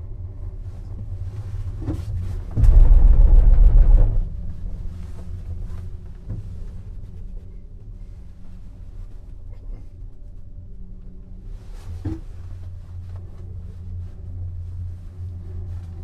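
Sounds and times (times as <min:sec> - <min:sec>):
gondola cabin rumbling: 0:00.0 - 0:16.0
carriage rumbling over tower rollers: 0:02.2 - 0:06.9.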